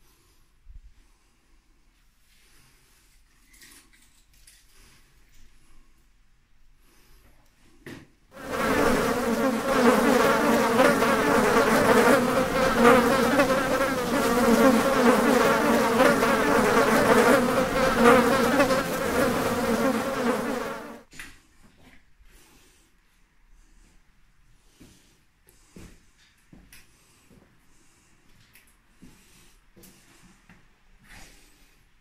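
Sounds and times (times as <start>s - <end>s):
swarm of flies buzzing: 8.4s - 21.0s.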